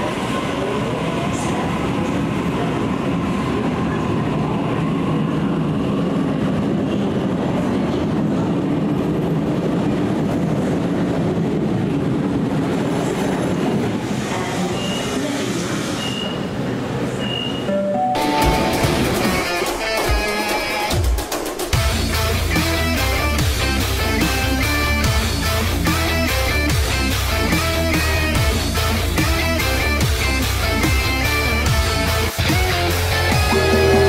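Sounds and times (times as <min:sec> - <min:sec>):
short high tones: 0:17.6 - 0:19.4.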